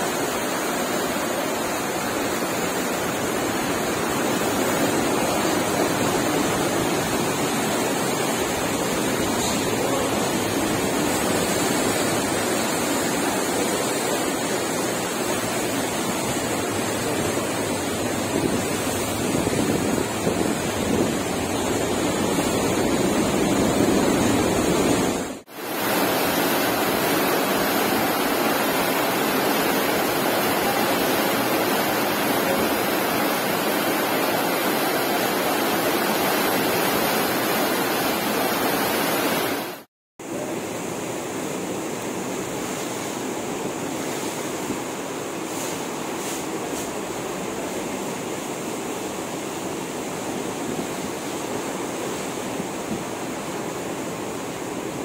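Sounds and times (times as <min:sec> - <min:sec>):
ship wake churning: 0:00.0 - 0:55.0
wind on microphone: 0:17.2 - 0:28.2.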